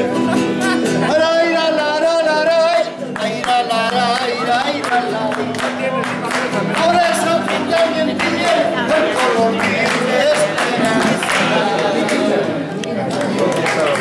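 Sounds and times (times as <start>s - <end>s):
acoustic guitar: 0.0s - 14.0s
voices singing along: 0.4s - 12.9s
hands clapping: 3.0s - 14.0s.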